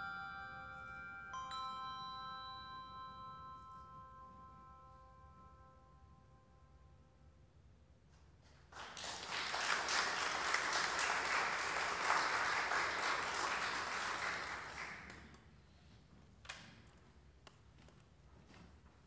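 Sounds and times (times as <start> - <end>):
congregation applauding: 8.7 - 15.4.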